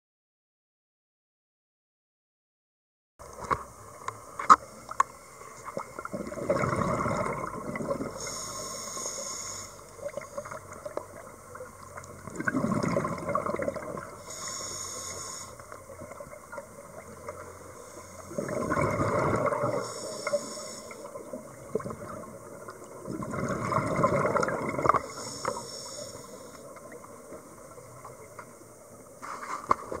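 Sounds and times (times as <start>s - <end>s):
exhaled bubbles underwater: 5.6s - 29.2s
regulator inhale hiss: 8.2s - 10.5s, 14.2s - 15.9s, 17.6s - 18.4s, 19.7s - 21.3s, 25.0s - 26.8s, 29.2s - 29.9s.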